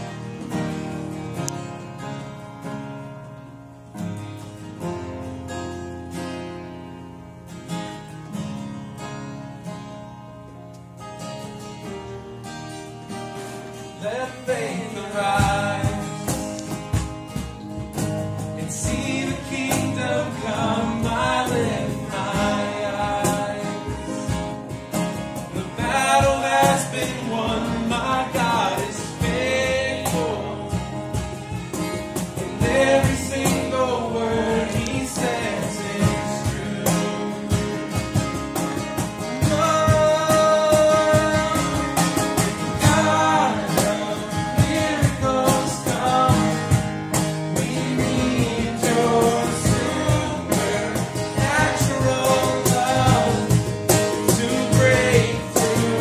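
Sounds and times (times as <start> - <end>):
strummed acoustic guitar: 0.0 - 56.0
people singing: 14.0 - 17.5, 18.4 - 56.0.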